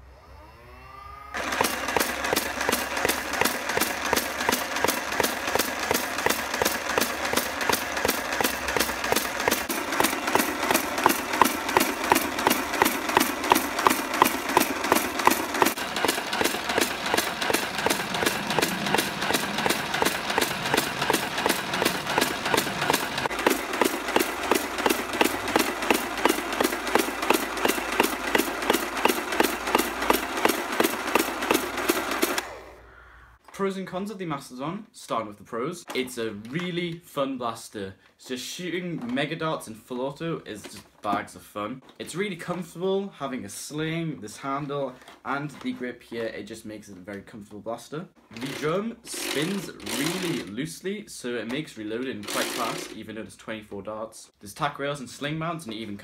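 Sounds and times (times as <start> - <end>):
toy blaster firing darts: 1.4 - 32.8, 52.2 - 53.0
flywheels whirring: 1.4 - 33.4, 48.3 - 50.6, 52.2 - 53.0.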